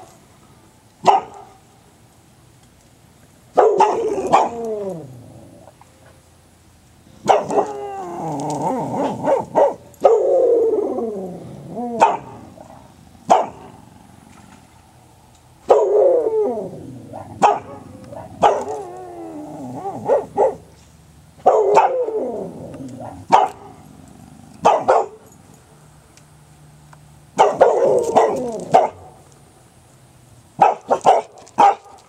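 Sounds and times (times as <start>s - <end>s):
dog barking: 1.0s - 1.6s, 3.6s - 4.6s, 7.2s - 7.8s, 9.1s - 10.3s, 12.0s - 12.4s, 13.3s - 13.7s, 15.7s - 16.2s, 17.2s - 18.8s, 19.9s - 20.7s, 21.4s - 22.1s, 23.0s - 23.7s, 24.6s - 25.2s, 27.4s - 29.1s, 30.6s - 32.0s.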